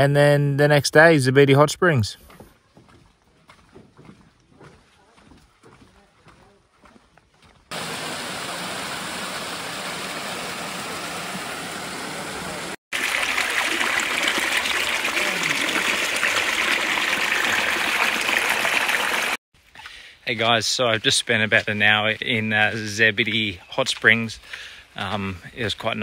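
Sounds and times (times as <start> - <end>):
water rushing over rocks: 7.7 - 19.4.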